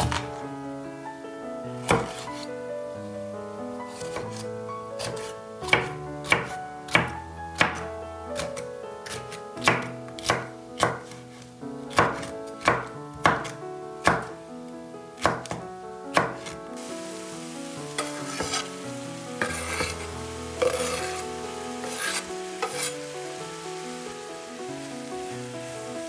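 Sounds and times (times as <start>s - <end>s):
knife chopping on cutting board: 0.0s - 0.3s, 1.9s - 2.2s, 5.0s - 7.8s, 8.4s - 11.2s, 11.9s - 14.3s, 15.2s - 16.6s, 18.0s - 18.7s, 19.4s - 20.0s, 20.6s - 21.2s
vegetables frying in a pan: 1.8s - 2.4s, 5.0s - 11.2s, 11.9s - 14.3s, 15.2s - 26.0s.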